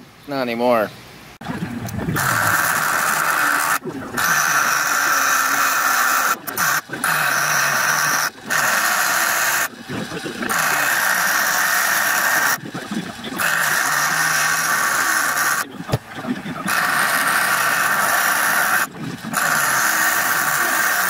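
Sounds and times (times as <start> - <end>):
bench grinder grinding steel: 2.2 - 9.7, 10.4 - 12.6, 13.3 - 15.6, 16.6 - 21.0.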